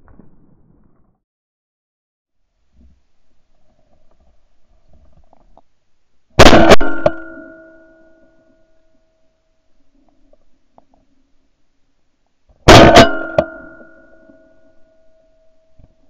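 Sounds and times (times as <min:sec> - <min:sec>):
shotgun firing: 0:06.4 - 0:07.7, 0:12.7 - 0:13.9
metallic ringing: 0:06.4 - 0:09.3, 0:12.7 - 0:15.8.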